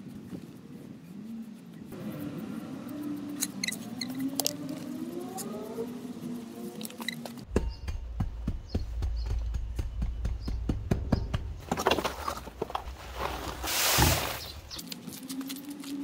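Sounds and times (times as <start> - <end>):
plastic membrane rustling: 7.4 - 16.0
fill sliding from wheelbarrow: 11.8 - 14.8.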